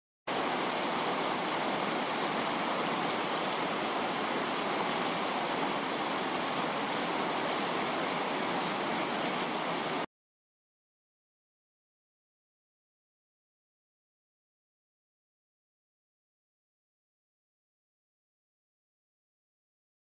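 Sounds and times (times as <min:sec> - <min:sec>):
heavy rain falling: 0:00.3 - 0:10.1.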